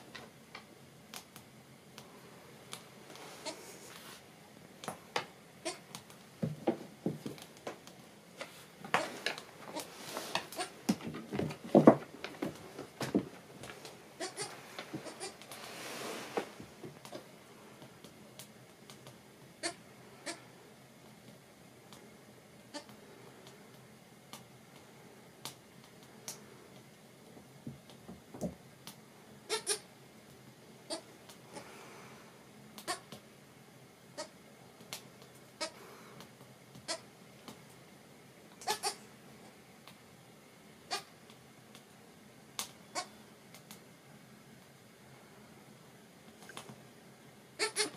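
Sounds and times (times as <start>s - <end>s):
small hooves tapping on wood floor: 5.9s - 8.0s, 8.8s - 14.0s
knocks on wooden floorboards: 10.9s - 13.3s.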